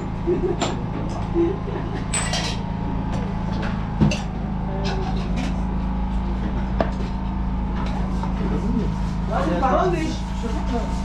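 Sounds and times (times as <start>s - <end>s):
steady low hum: 0.0s - 11.0s
clinks of teapots and crockery: 2.1s - 2.6s.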